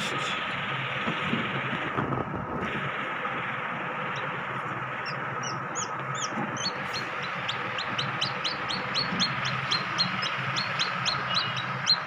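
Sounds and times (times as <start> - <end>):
incubator hum: 0.0 - 12.0
chick peeping: 4.1 - 12.0.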